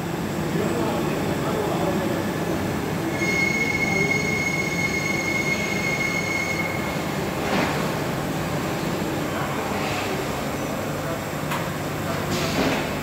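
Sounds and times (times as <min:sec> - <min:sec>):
machine high whine: 0:00.2 - 0:07.3.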